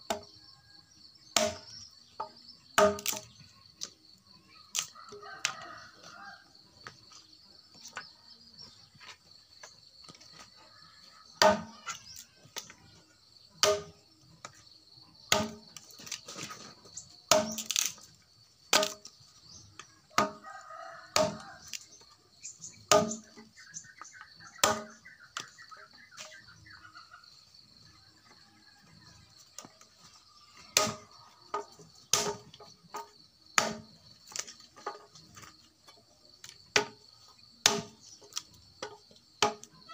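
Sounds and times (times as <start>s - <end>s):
machete chopping branches: 1.4s - 1.8s, 2.8s - 3.4s, 13.6s - 14.0s, 15.3s - 16.6s, 17.3s - 18.1s, 18.7s - 19.1s, 21.2s - 21.8s, 22.9s - 23.4s, 24.6s - 25.5s, 30.8s - 34.6s, 37.6s - 39.7s
chickens calling: 19.6s - 32.1s.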